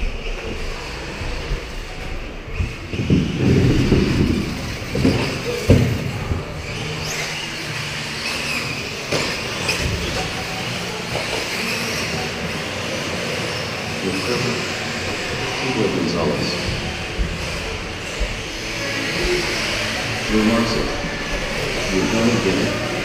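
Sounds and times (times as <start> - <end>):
electric motor whine: 0.0 - 23.0
tyre noise: 0.0 - 23.0
loud knocks: 2.9 - 6.6.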